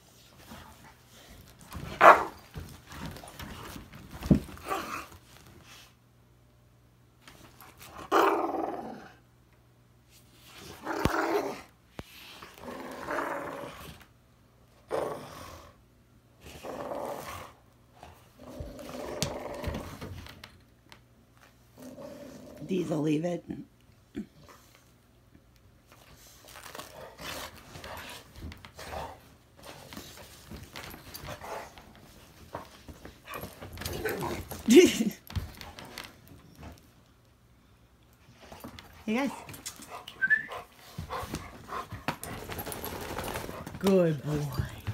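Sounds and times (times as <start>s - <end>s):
dogs scuffling: 0.0s - 5.8s, 25.9s - 37.0s, 38.4s - 44.9s
dogs growling while playfighting: 7.7s - 9.2s, 10.5s - 14.1s, 14.8s - 15.8s, 16.4s - 20.2s, 21.7s - 22.7s, 26.5s - 36.1s, 40.8s - 44.9s
dogs panting and huffing: 38.4s - 44.1s.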